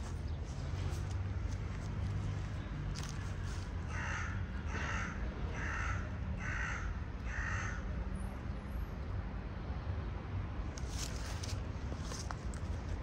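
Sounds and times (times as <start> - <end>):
crow cawing: 3.9 - 7.9.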